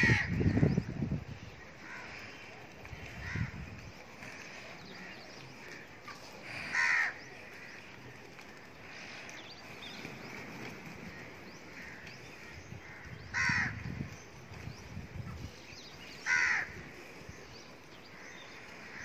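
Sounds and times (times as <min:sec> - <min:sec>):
crows cawing: 0:01.8 - 0:03.6, 0:04.2 - 0:08.0, 0:11.1 - 0:14.0, 0:16.2 - 0:17.0, 0:18.1 - 0:19.0.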